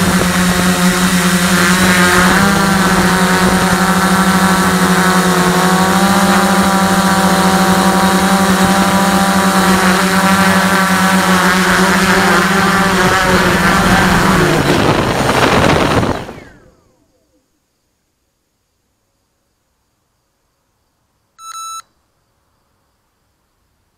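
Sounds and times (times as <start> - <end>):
drone motors droning: 0.0 - 17.6.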